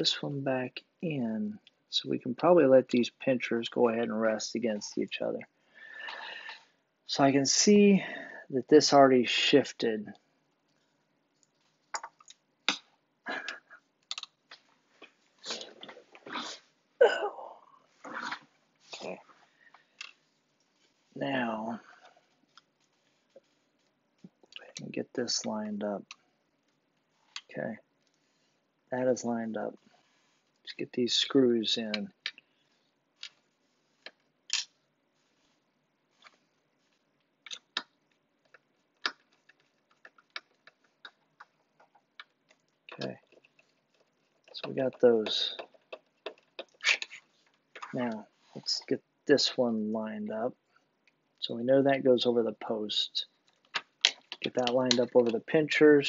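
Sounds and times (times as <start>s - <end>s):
plastic parts clicking and rattling: 53.5s - 55.4s.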